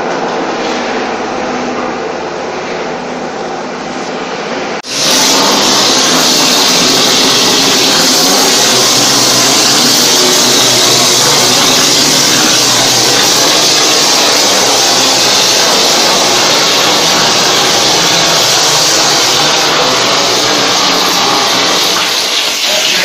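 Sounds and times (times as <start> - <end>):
machine mechanical drone: 0.0 - 23.0
spray gun hissing: 4.8 - 23.0.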